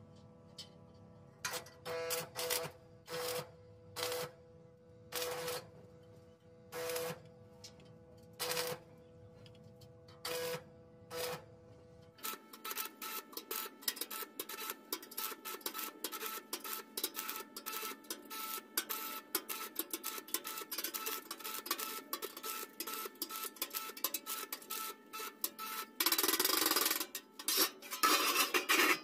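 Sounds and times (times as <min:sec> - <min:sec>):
welding arc crackling: 0:02.1 - 0:04.3, 0:05.2 - 0:05.7, 0:06.8 - 0:07.3, 0:08.4 - 0:08.8, 0:12.2 - 0:29.0.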